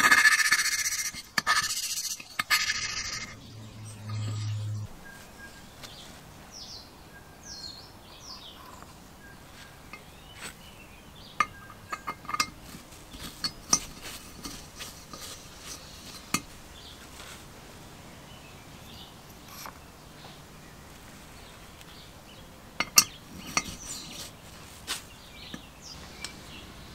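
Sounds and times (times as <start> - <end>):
faint chirps: 1.7 - 6.2
metal valve clinking: 11.4 - 16.5, 22.8 - 24.2.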